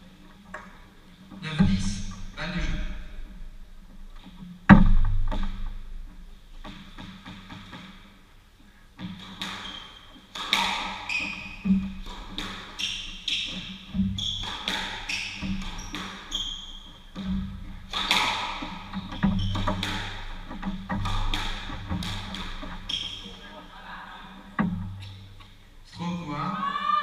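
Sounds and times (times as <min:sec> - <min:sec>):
squash ball hitting rackets and walls: 0:04.2 - 0:08.2, 0:09.0 - 0:23.6
shoes squeaking on wooden floor: 0:09.0 - 0:25.7.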